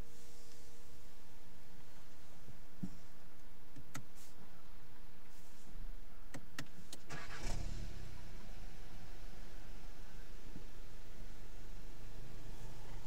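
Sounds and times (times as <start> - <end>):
car engine starting and idling: 6.4 - 13.0.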